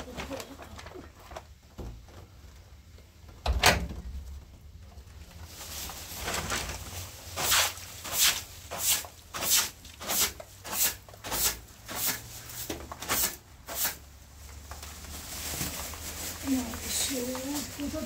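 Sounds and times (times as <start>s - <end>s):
broom sweeping water off concrete: 7.1s - 14.0s.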